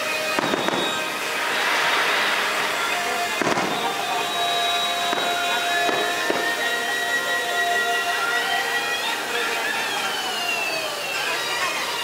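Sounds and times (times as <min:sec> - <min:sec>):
fireworks bangs: 0:00.0 - 0:07.2
fireworks crackling hiss: 0:00.0 - 0:12.0.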